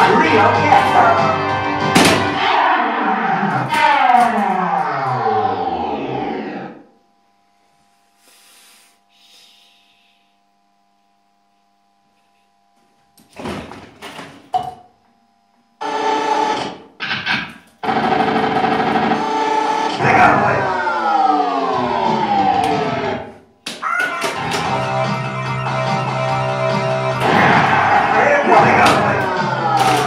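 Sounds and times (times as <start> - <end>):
electronic sound effects: 0.0 - 6.9
loud sustained electronic effect: 0.0 - 7.0, 17.8 - 23.4, 24.7 - 30.0
faint electrical hum: 6.7 - 15.8.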